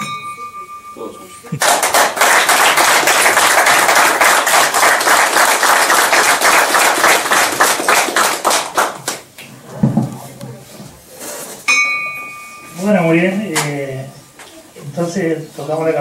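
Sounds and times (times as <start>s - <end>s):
desk bell ringing: 0.0s - 2.2s, 11.7s - 13.5s
people applauding: 1.6s - 9.3s.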